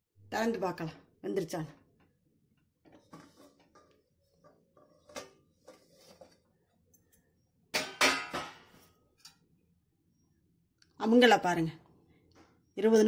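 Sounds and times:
metal lid clinks and scrapes: 0:03.0 - 0:06.4.

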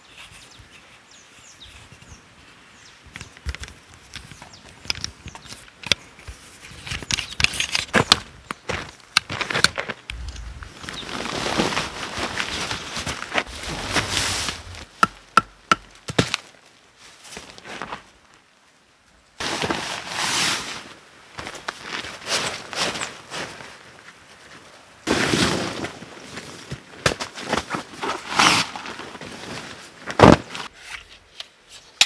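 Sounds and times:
tent fabric rustling and flapping: 0:10.1 - 0:14.9.

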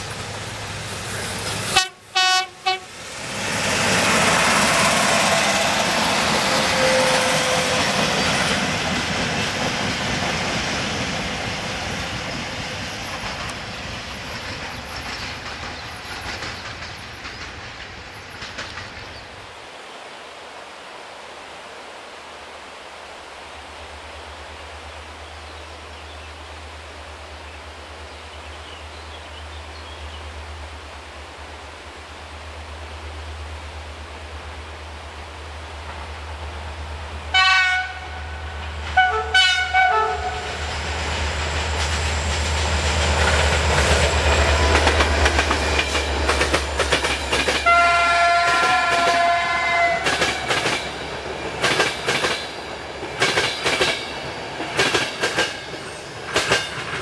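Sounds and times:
wheels clickety-clack over rail joints: 0:00.0 - 0:01.9, 0:07.5 - 0:19.6, 0:40.9 - 0:57.0
train engine and wheel noise: 0:00.0 - 0:57.0
train horn blasts: 0:01.7 - 0:03.0, 0:04.5 - 0:08.4, 0:37.3 - 0:40.8, 0:47.6 - 0:50.6.

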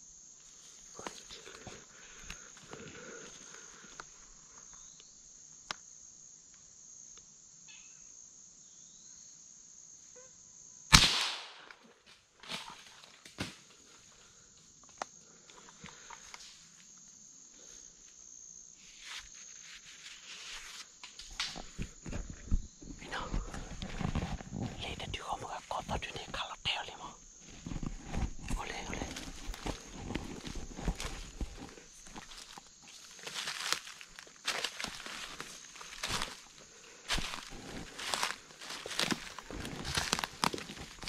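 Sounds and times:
high-pitched insect drone: 0:00.0 - 0:11.0, 0:13.8 - 0:41.0
gunshot: 0:10.9 - 0:11.7
footsteps in leaf litter: 0:28.6 - 0:41.0.

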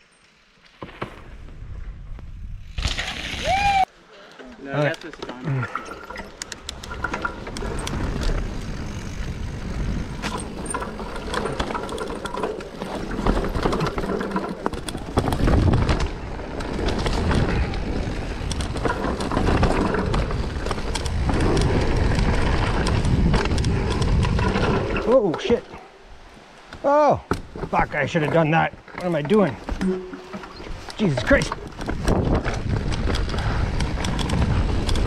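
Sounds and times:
bike rattles and clicks: 0:04.6 - 0:25.8, 0:26.7 - 0:35.0
wind on microphone: 0:06.7 - 0:11.6, 0:15.0 - 0:25.1, 0:31.5 - 0:35.0
tyres crunching over dirt: 0:27.4 - 0:35.0.

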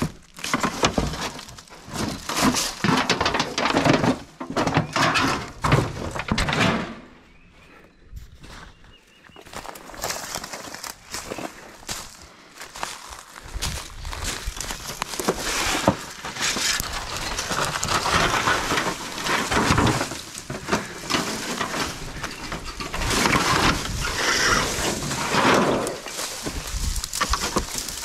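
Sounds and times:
dry brush crunching underfoot: 0:08.2 - 0:28.0.

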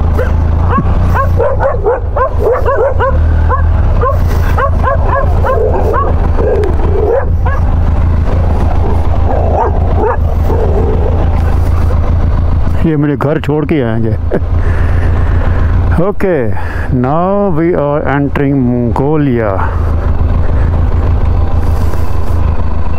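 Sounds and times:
dogs barking and yipping: 0:00.0 - 0:12.2
low engine hum: 0:00.0 - 0:22.9.

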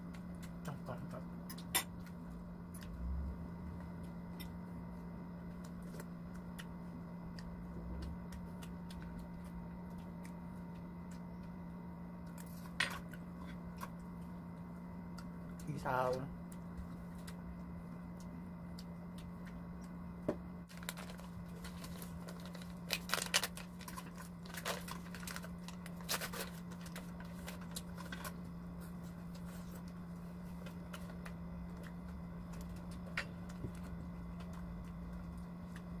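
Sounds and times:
steady low hum: 0:00.0 - 0:36.0
paper wrapper crinkling and tearing: 0:20.7 - 0:30.0.

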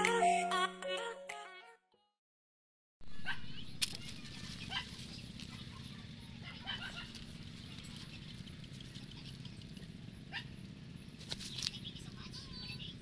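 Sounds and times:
high animal calls: 0:03.1 - 0:10.7.

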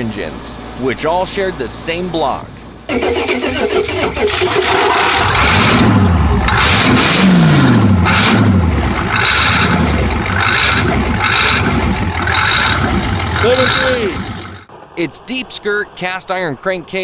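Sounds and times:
diesel engine cranking and revving: 0:02.9 - 0:14.8.

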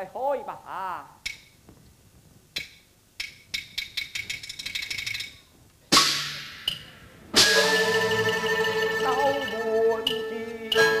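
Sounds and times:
percussion strikes speeding into a roll: 0:05.9 - 0:08.8
loud cymbal crash: 0:05.9 - 0:09.0
melodic instruments playing: 0:06.7 - 0:11.0.

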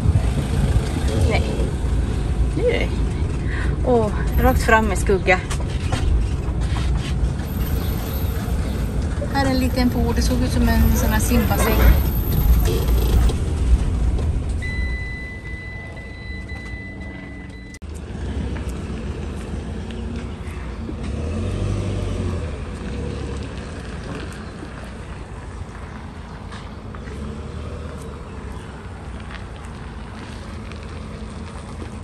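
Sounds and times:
engine low rumble: 0:00.0 - 0:32.0
high-pitched beep: 0:14.6 - 0:17.8.

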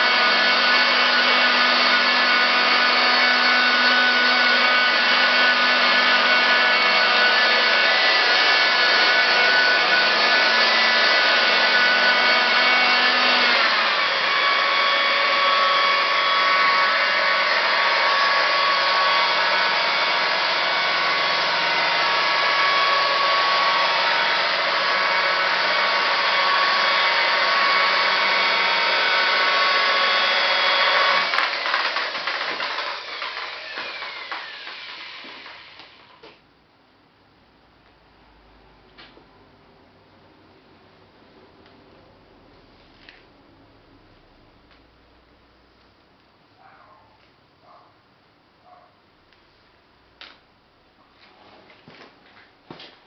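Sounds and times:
rotary polisher whining: 0:00.0 - 0:36.4.

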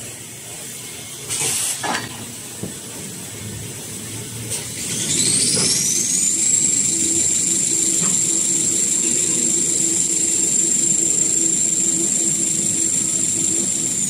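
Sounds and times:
low mechanical hum: 0:00.0 - 0:14.0
machine whine: 0:04.0 - 0:14.0.

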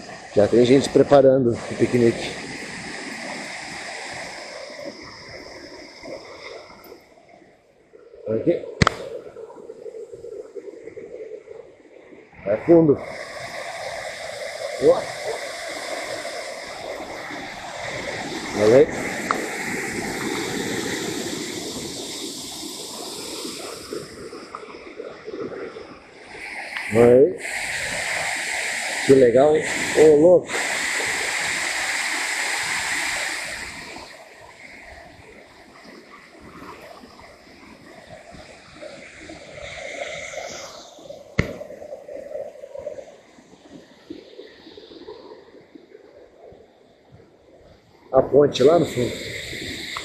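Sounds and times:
waterfall rushing: 0:00.0 - 0:06.9, 0:12.6 - 0:25.3, 0:26.0 - 0:34.6
river running: 0:00.0 - 0:50.0
sharp click: 0:08.8 - 0:09.1
waterfall pouring into pool: 0:26.7 - 0:34.4.

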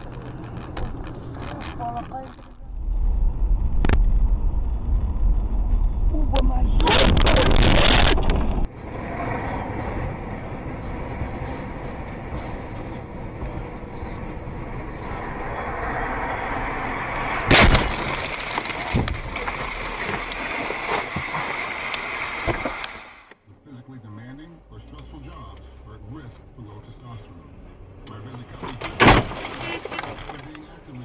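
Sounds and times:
road and engine noise in car: 0:00.0 - 0:02.8, 0:03.8 - 0:31.0
car collision bang: 0:17.0 - 0:19.4, 0:28.7 - 0:30.1.

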